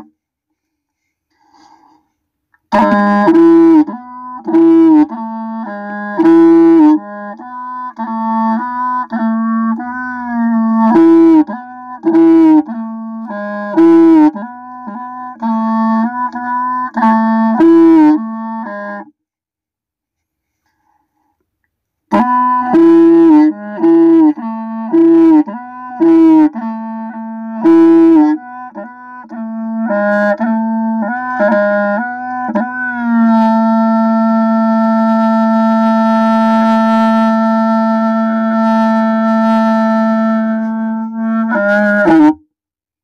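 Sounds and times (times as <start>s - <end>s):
reed wind instrument melody: 2.6s - 19.2s, 22.1s - 42.4s.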